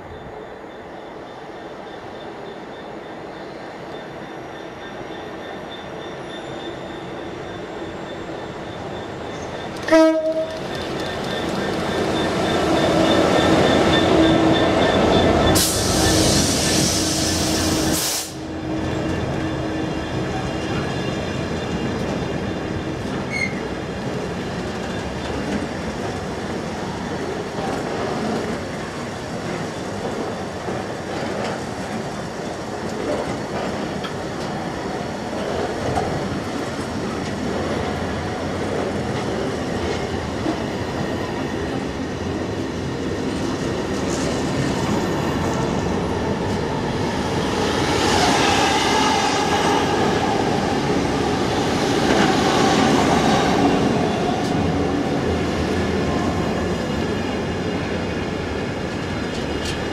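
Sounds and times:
high wheel squeal: 11.0 - 17.9.

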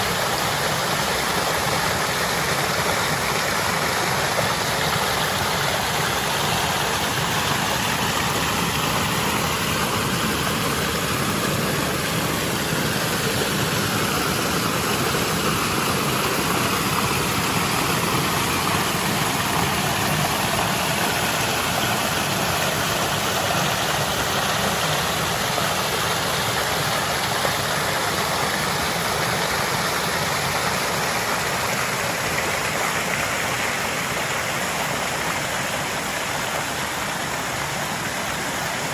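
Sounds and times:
waterfall splashing over rocks: 0.0 - 38.9.

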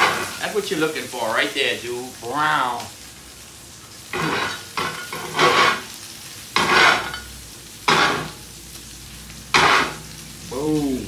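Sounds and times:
patties sizzling in a pan: 0.0 - 11.0
metal spatula scraping pan: 4.1 - 6.0, 6.6 - 7.3, 7.9 - 8.4, 9.6 - 10.1.

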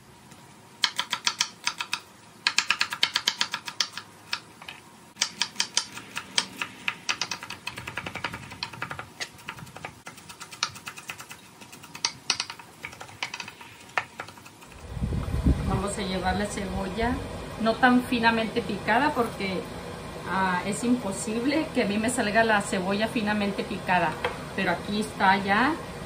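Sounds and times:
knife chopping on wooden board: 0.8 - 4.4.

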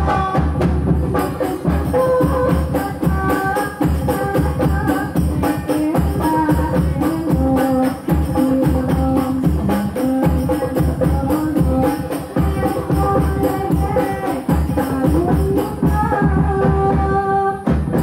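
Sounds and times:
frame drums playing: 0.0 - 18.0
girls singing together: 10.3 - 17.7.

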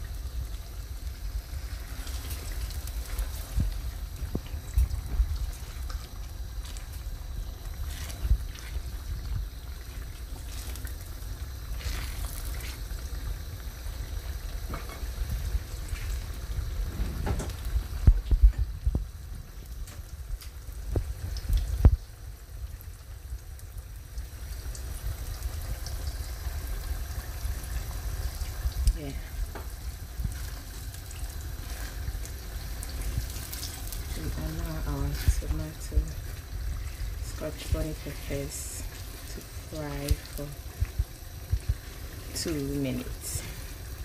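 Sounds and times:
stew bubbling and spitting: 1.2 - 14.5.

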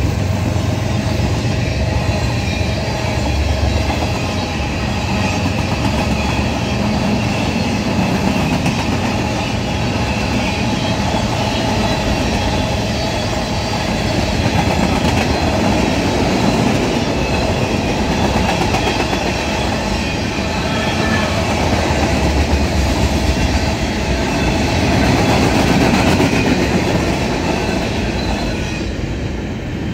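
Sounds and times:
freight train wheels rumbling on rails: 0.0 - 29.9.

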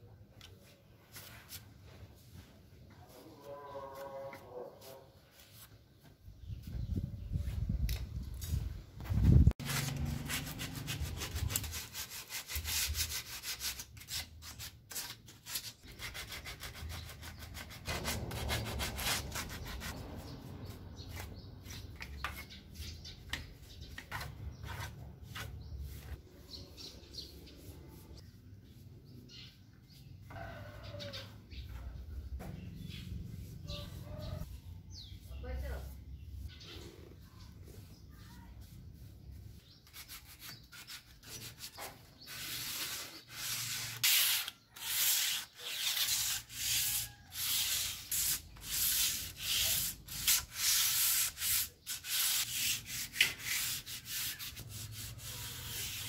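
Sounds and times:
sandpaper rubbing on wood: 9.3 - 23.0, 23.6 - 28.9, 37.8 - 56.0.

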